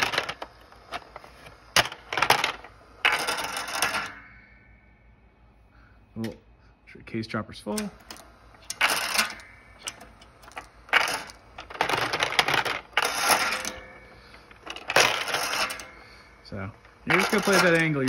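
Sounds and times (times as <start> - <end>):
bullets rattling against metal: 7.7 - 18.0.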